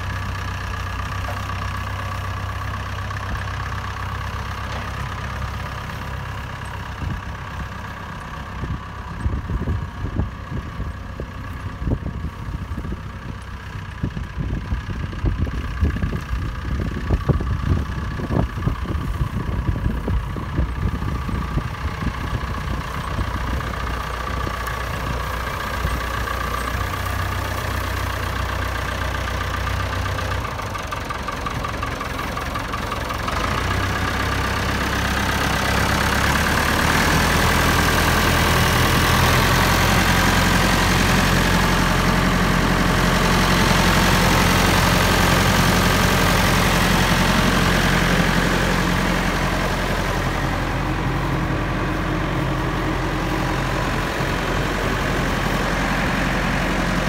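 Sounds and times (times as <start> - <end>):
tractor diesel engine idling: 0.0 - 57.0.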